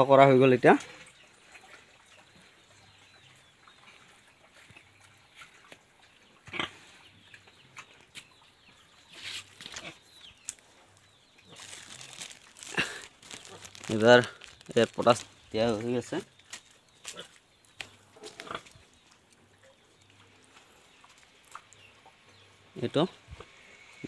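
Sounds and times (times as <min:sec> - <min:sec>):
pigs grunting: 0:06.4 - 0:07.0, 0:18.0 - 0:18.8
rustling handling noise: 0:09.2 - 0:17.2.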